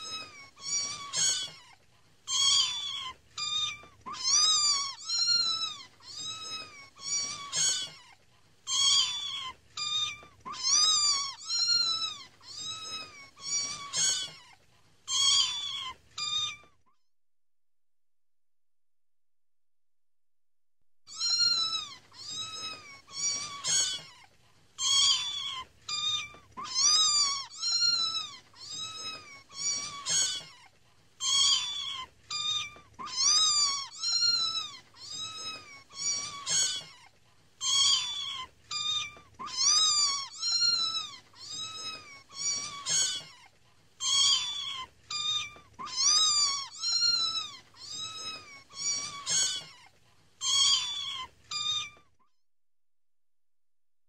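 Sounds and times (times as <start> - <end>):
kittens mewing: 0.0 - 16.7, 21.1 - 52.1.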